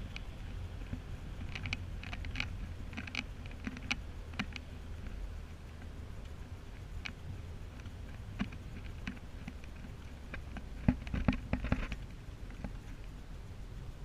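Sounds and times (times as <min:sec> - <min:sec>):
road and engine rumble: 0:00.0 - 0:14.0
light clicks and taps: 0:00.1 - 0:13.1.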